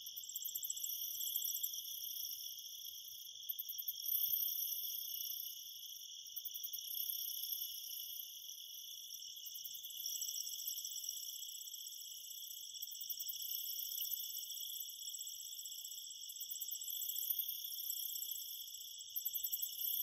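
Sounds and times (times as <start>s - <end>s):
high pulsed insect trills: 0.0s - 20.0s
insects chirring: 0.0s - 20.0s.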